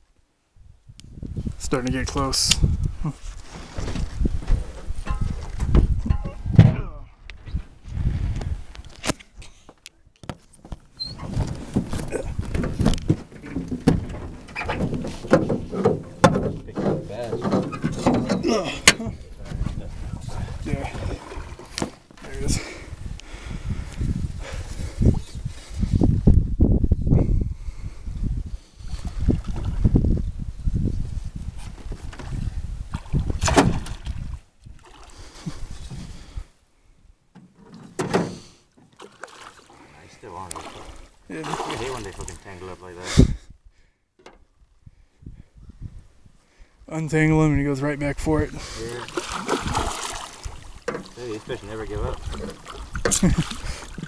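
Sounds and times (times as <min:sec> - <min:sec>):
wind rumbling on microphone: 0:00.0 - 0:09.5, 0:11.0 - 0:36.6, 0:41.9 - 0:54.0
knocks and clicks in metal boat: 0:04.5 - 0:06.8, 0:10.2 - 0:19.1, 0:37.3 - 0:38.9, 0:44.2 - 0:44.5, 0:50.8 - 0:51.2
water lapping against boat: 0:20.0 - 0:22.1, 0:38.3 - 0:42.6, 0:48.5 - 0:54.0
loud splashes or knocks: 0:32.9 - 0:34.2, 0:49.0 - 0:54.0.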